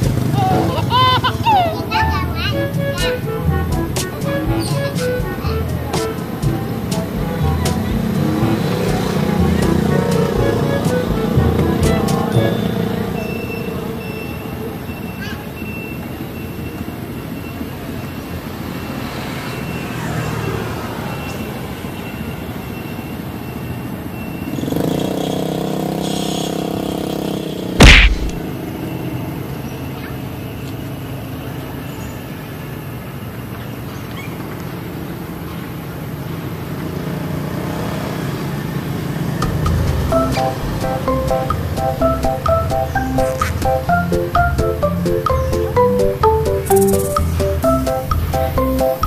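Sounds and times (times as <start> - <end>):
outdoor background noise: 0.0 - 49.0
sharp loud knock: 27.8 - 28.4.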